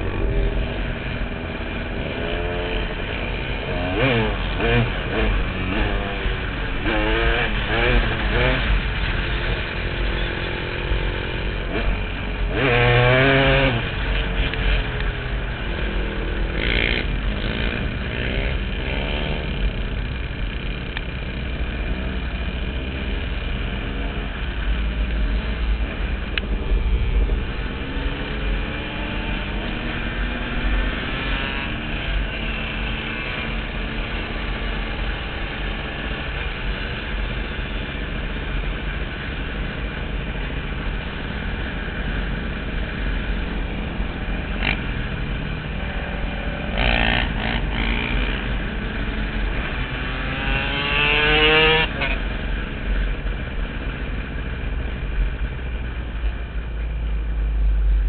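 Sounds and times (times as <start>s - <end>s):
dirt bike engine revving: 0.0s - 9.4s, 11.7s - 14.8s, 15.7s - 20.1s, 43.4s - 52.2s.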